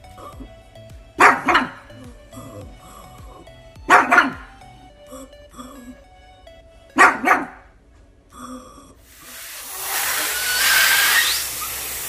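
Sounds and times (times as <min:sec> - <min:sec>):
helium hissing from nozzle: 0:09.1 - 0:12.0
thin rising whistle: 0:09.7 - 0:12.0.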